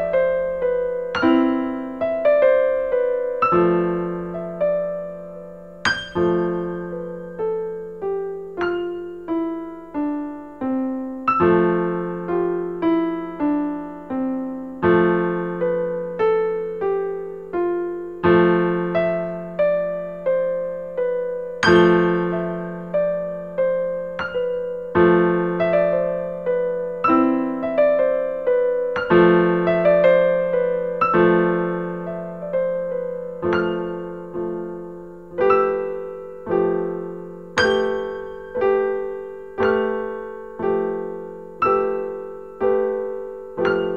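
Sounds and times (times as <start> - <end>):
solo piano music: 0.0 - 43.9.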